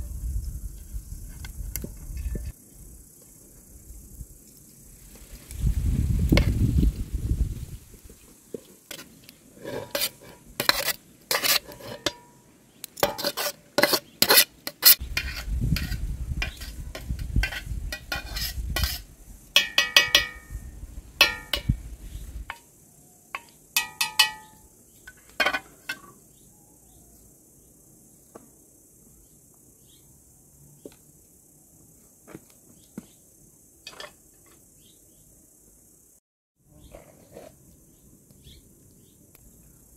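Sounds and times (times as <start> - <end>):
metal cookware clinking and scraping: 9.6 - 12.3, 13.0 - 19.0, 19.6 - 20.6, 21.2 - 21.8, 23.4 - 24.6, 25.4 - 26.1, 33.9 - 34.2
ringing metal knocks: 19.6 - 20.5, 23.4 - 24.6.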